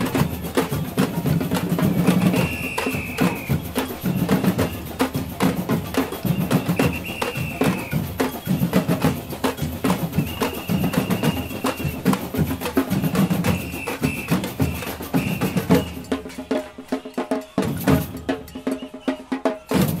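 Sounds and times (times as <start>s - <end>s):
samba drums playing: 0.0s - 20.0s
whistle blasts: 1.9s - 5.1s, 6.0s - 8.9s, 10.1s - 12.2s, 13.0s - 20.0s.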